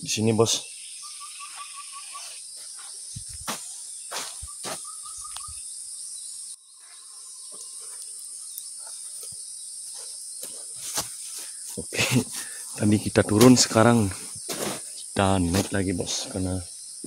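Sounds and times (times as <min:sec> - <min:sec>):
high-pitched insects buzzing: 0:00.0 - 0:17.0
bird whistling: 0:00.9 - 0:02.4, 0:04.4 - 0:05.7
footsteps in leaf litter: 0:01.4 - 0:05.3, 0:08.9 - 0:15.8.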